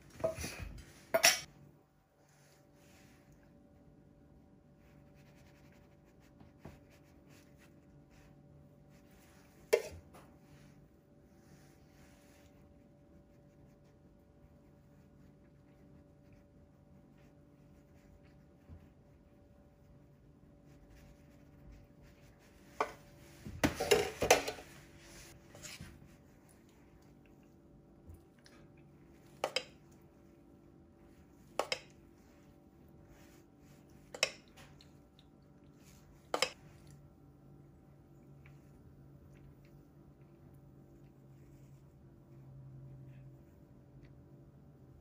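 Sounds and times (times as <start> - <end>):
metal spoon scraping: 1.1 - 1.5, 9.7 - 10.0, 23.8 - 24.6
utensils clinking against dishes: 1.1 - 1.5.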